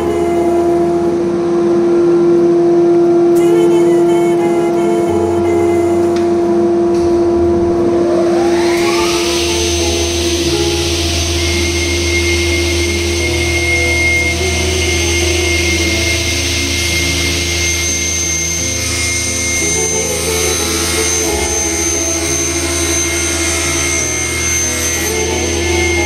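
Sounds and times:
background music: 0:03.3 - 0:26.0
panel saw whine and hiss: 0:07.8 - 0:26.0.

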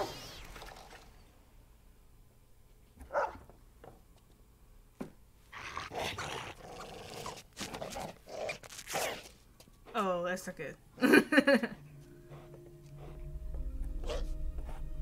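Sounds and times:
noisy dog sounds: 0:03.0 - 0:03.5, 0:14.0 - 0:14.8.

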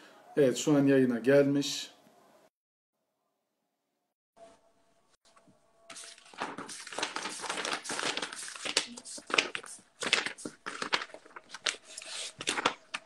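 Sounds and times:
paper rustling and crinkling: 0:05.3 - 0:13.0.

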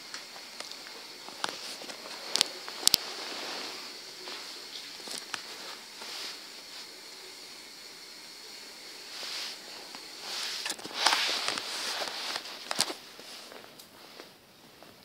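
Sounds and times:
dog fur scuffing against phone: 0:10.2 - 0:13.6.

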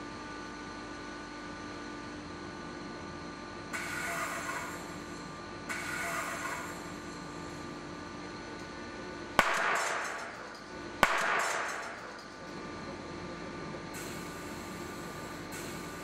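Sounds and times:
steady machine hum: 0:00.0 - 0:16.0
loud bangs: 0:09.4 - 0:12.3.

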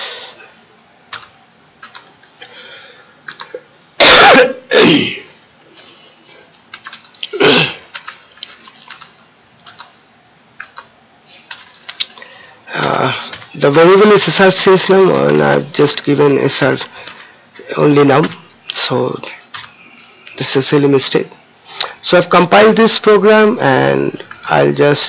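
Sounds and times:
computer keyboard clicking: 0:01.1 - 0:02.1, 0:03.2 - 0:03.6, 0:06.6 - 0:07.3, 0:07.9 - 0:10.0, 0:10.6 - 0:10.9, 0:11.5 - 0:12.2, 0:19.5 - 0:19.8
person coughing loudly: 0:04.0 - 0:05.4, 0:07.3 - 0:07.9.

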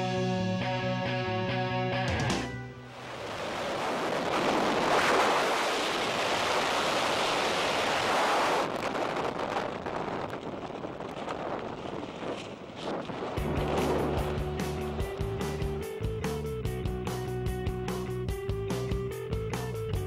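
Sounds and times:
wind rushing over microphone: 0:02.8 - 0:17.9.

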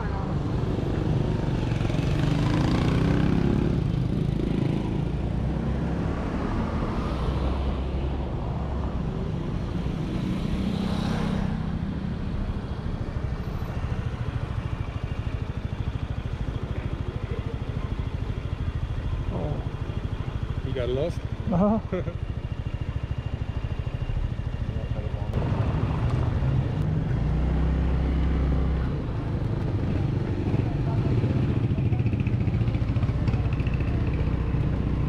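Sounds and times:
motorbikes passing: 0:00.0 - 0:35.0
scooter engine idling: 0:14.0 - 0:25.3.

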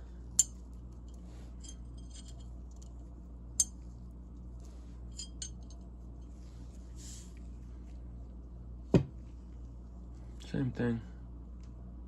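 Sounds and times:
low steady hum: 0:00.0 - 0:12.0
ratchet parts clinking: 0:00.4 - 0:02.9, 0:05.1 - 0:05.8.

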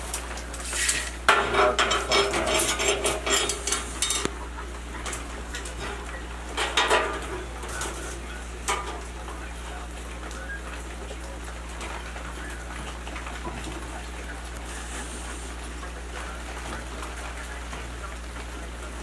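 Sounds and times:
metal tools rattling: 0:00.7 - 0:04.3.

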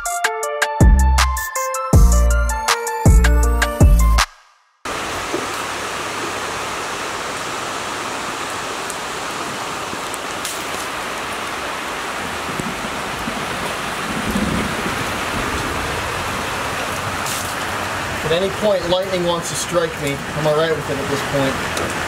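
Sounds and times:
rain falling: 0:04.9 - 0:22.0.

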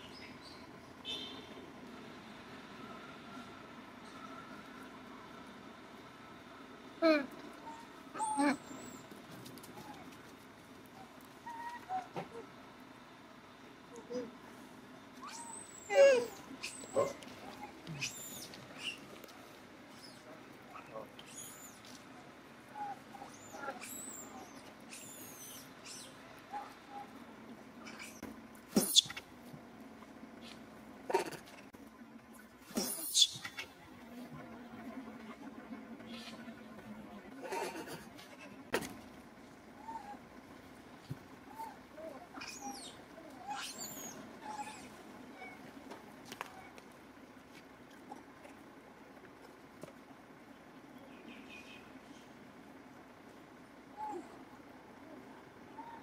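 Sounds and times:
outdoor background noise: 0:00.0 - 0:56.0
high-pitched animal squeaks: 0:15.2 - 0:19.0, 0:22.8 - 0:26.2, 0:28.8 - 0:29.2, 0:32.8 - 0:33.6, 0:41.5 - 0:45.6.

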